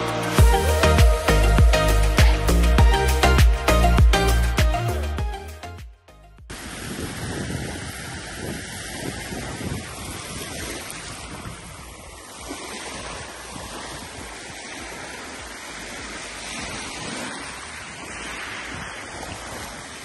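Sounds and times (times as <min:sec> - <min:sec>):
small waves lapping on shingle: 0:06.5 - 0:20.0.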